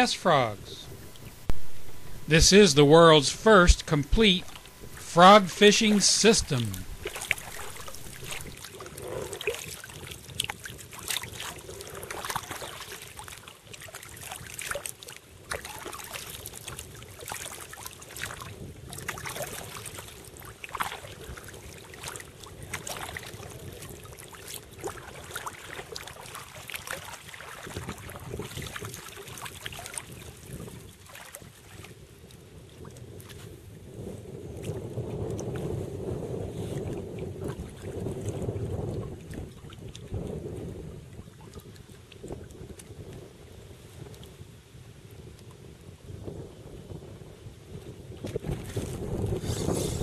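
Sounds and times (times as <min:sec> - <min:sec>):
paddle splashing in water: 0:00.8 - 0:32.4, 0:48.2 - 0:50.0
water dripping: 0:06.9 - 0:08.6.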